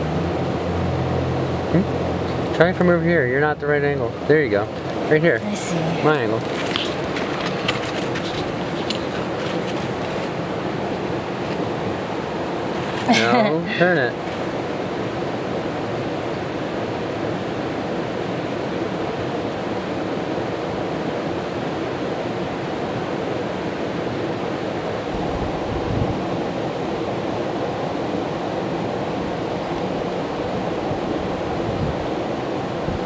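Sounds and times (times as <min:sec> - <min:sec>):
river water rushing: 0:00.0 - 0:33.0.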